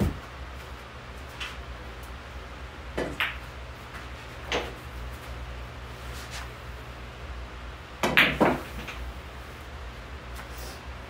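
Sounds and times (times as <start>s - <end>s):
fan hum: 0.0s - 11.0s
pool balls clicking: 2.9s - 4.8s, 8.0s - 9.1s.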